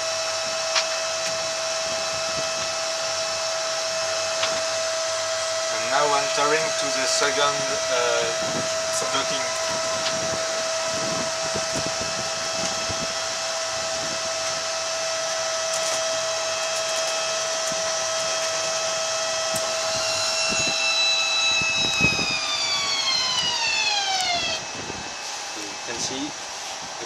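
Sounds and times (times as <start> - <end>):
electric motor whining: 0.0 - 27.0.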